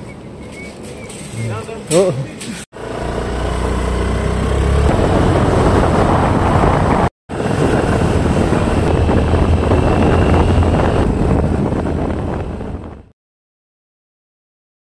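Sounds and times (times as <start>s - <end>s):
low vehicle drone: 0.0s - 13.1s
wind noise on microphone: 4.8s - 13.1s.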